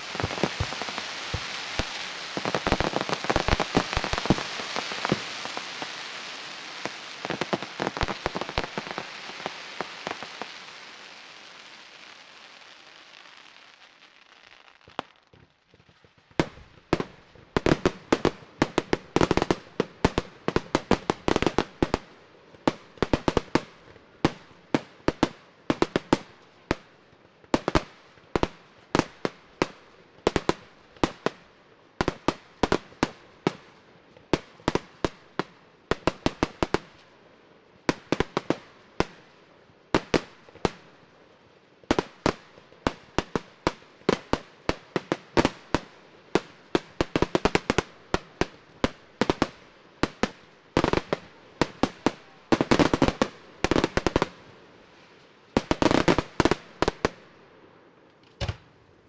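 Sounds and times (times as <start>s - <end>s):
fireworks bangs: 0.0s - 22.0s.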